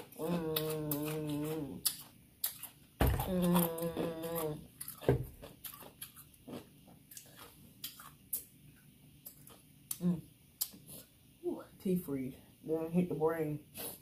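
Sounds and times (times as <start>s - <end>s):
hummed moan: 0.0s - 1.8s, 3.2s - 4.7s
ice cubes being chewed: 0.0s - 8.5s.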